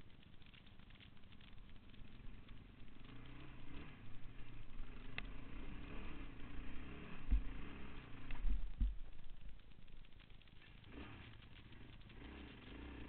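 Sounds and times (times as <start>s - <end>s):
quad bike engine under load: 0.4s - 13.0s
low thumps: 7.0s - 10.1s.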